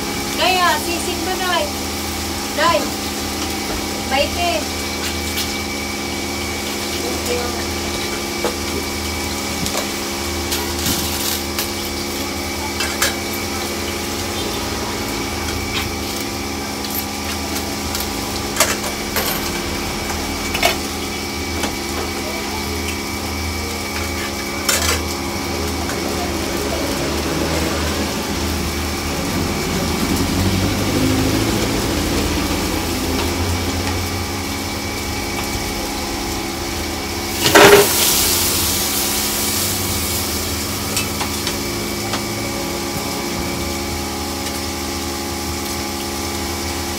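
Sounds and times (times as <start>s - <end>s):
meat deep-frying in oil: 0.0s - 46.9s
steady mechanical hum: 0.0s - 46.9s
loud burst of noise: 24.7s - 45.6s
metal utensils scraping a wok: 37.4s - 38.3s.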